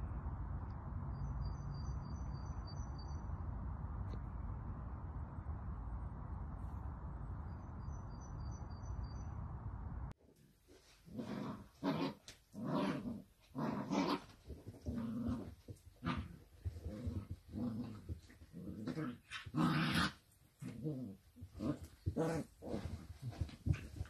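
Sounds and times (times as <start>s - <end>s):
low wind rumble on microphone: 0.0s - 10.2s
puppies growling playfully: 11.1s - 24.0s.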